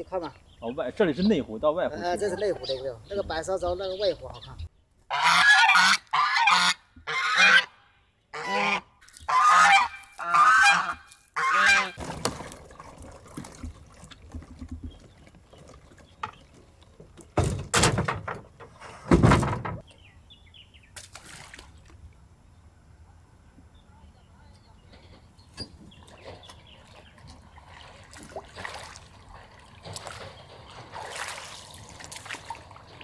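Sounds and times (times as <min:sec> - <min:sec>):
bird honking loudly: 0:05.1 - 0:12.0.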